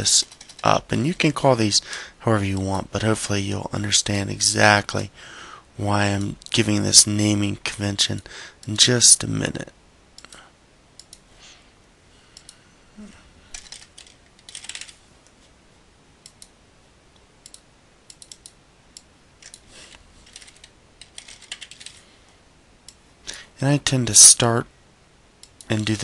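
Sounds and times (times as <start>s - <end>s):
computer keyboard typing: 0.1s - 0.9s, 13.5s - 15.0s, 20.2s - 22.0s
mouse clicks: 17.2s - 19.6s.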